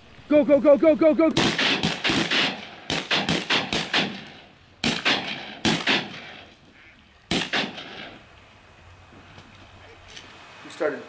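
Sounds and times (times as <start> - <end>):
shotgun shots echoing: 1.4 - 6.6, 7.3 - 8.2.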